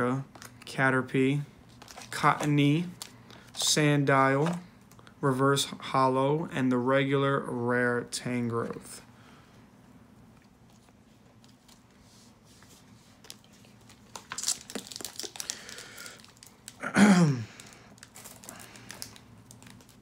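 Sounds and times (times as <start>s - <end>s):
foil wrapper crinkling: 1.7s - 3.7s, 13.2s - 16.8s, 17.5s - 20.0s.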